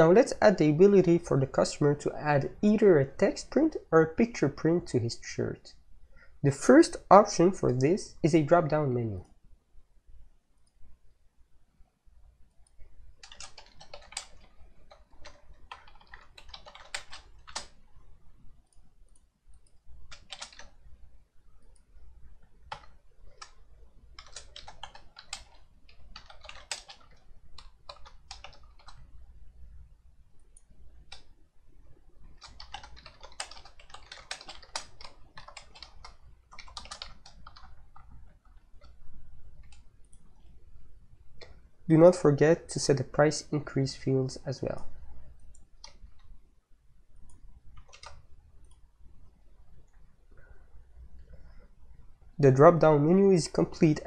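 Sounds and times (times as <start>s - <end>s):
computer keyboard typing: 12.6s - 17.9s, 19.1s - 20.9s, 21.6s - 29.1s, 30.5s - 31.4s, 32.2s - 40.5s, 45.5s - 46.3s, 47.2s - 48.8s.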